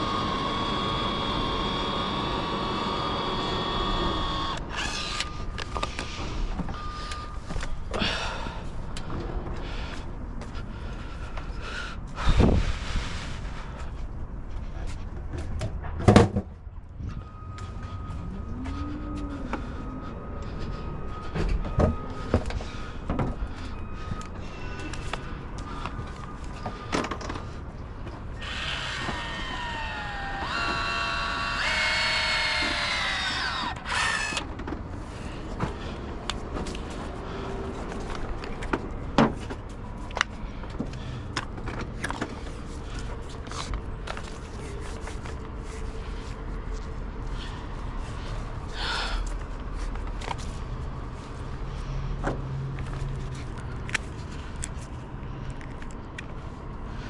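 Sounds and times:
power tool running: 0.0 - 5.3, 28.4 - 34.5.

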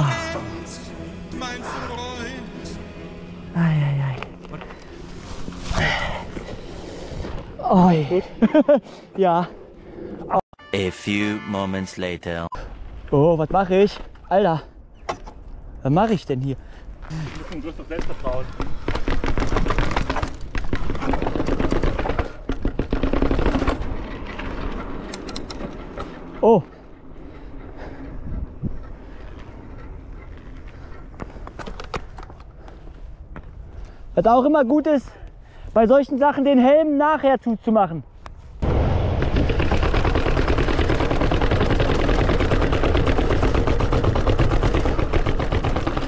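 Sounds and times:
bike rattling over rough ground: 17.0 - 34.0, 38.6 - 46.0.

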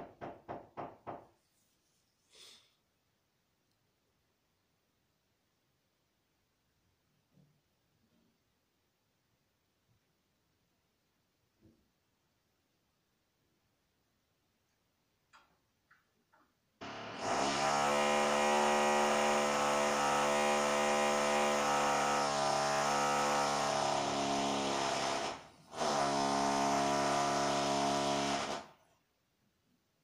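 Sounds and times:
power tool buzzing through walls: 16.8 - 28.9.

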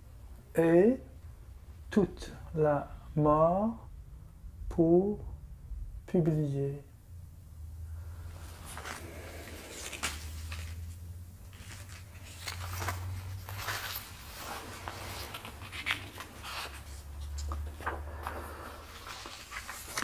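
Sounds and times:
low steady hum: 0.0 - 20.0
soft shuffling: 7.7 - 20.0
paper rustling: 8.3 - 20.0.

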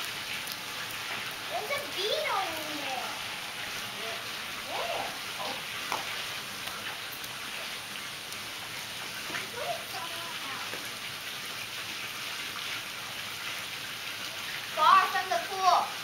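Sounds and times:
water splashing into a pool: 0.0 - 16.0
faint voice: 4.0 - 5.6.

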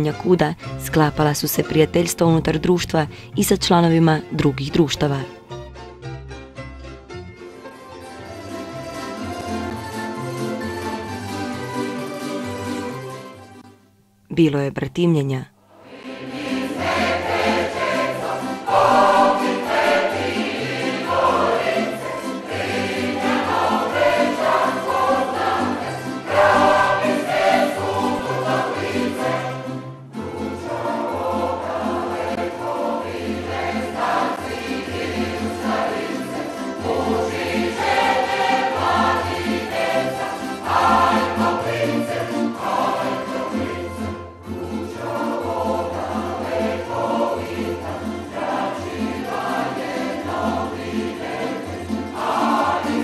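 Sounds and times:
instrumental accompaniment: 0.0 - 13.9, 15.9 - 53.0
group of voices singing: 15.8 - 53.0.

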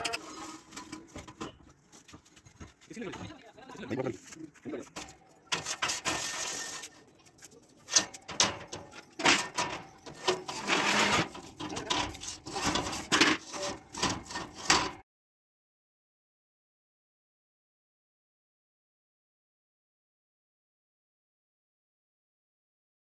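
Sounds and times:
steel pipes clanking on metal frame: 0.0 - 1.8, 4.8 - 15.0.

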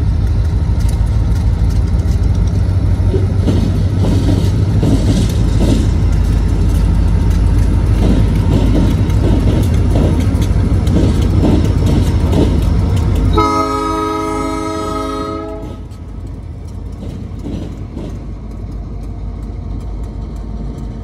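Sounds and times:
diesel locomotives rumbling: 0.0 - 21.0
rolling of train cars: 0.0 - 21.0
train air horn: 13.4 - 15.8
faint wheel clicks: 15.9 - 21.0.

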